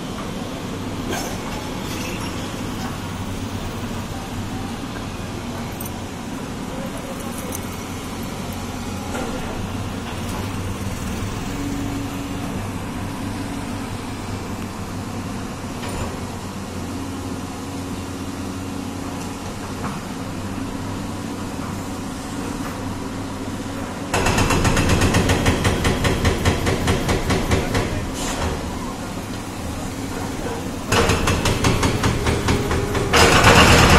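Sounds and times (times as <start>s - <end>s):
diesel engine humming: 0.0s - 24.1s.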